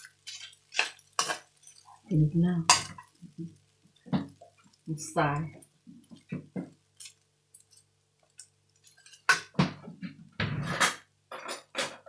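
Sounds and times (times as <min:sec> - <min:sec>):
metal ladle scraping wok: 0:00.0 - 0:02.0.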